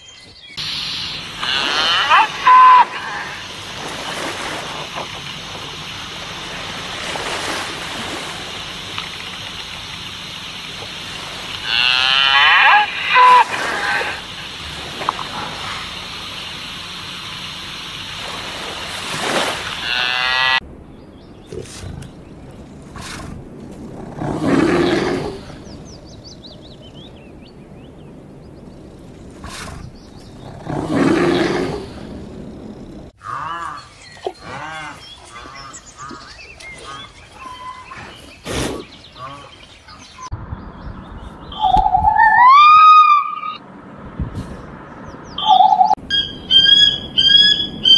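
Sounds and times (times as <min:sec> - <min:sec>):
steady noise: 0:00.6 - 0:19.8
rising and falling animal calls: 0:00.7 - 0:03.5, 0:11.5 - 0:16.1, 0:41.5 - 0:43.6, 0:45.4 - 0:47.9
bear roaring: 0:23.8 - 0:25.6, 0:30.4 - 0:32.4.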